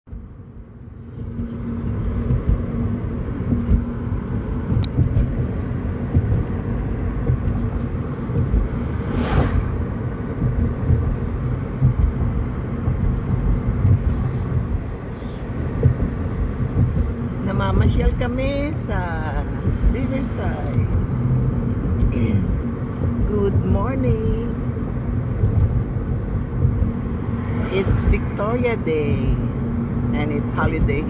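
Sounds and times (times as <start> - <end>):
car cabin road and engine drone: 0.0 - 31.0
rushing whoosh: 3.4 - 17.0, 25.3 - 28.4.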